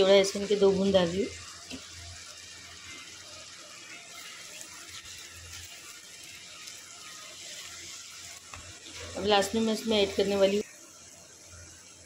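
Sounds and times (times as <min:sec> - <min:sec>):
soft sizzle: 0:00.0 - 0:12.0
spatula stirring: 0:03.8 - 0:10.1.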